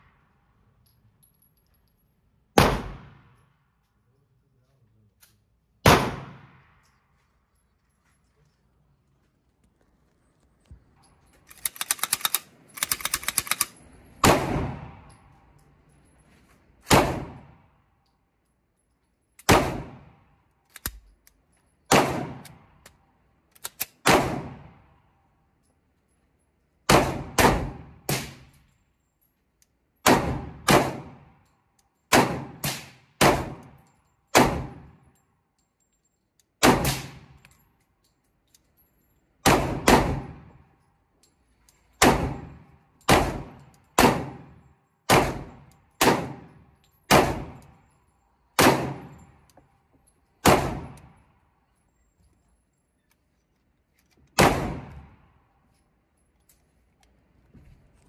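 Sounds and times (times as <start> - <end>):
pistol shots with ringing tail: 2.5 - 3.4, 5.8 - 7.0, 14.2 - 15.5, 16.8 - 17.8, 19.4 - 20.3, 21.9 - 22.8, 24.0 - 25.1, 26.8 - 28.6, 30.0 - 31.4, 32.1 - 35.1, 36.6 - 37.4, 39.4 - 40.7, 41.9 - 49.4, 50.3 - 51.4, 54.4 - 55.3.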